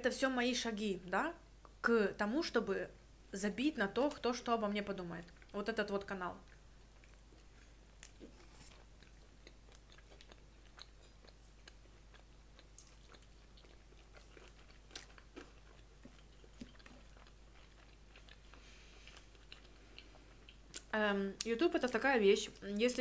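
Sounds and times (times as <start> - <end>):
person chewing food: 5.2 - 5.6, 6.4 - 20.9.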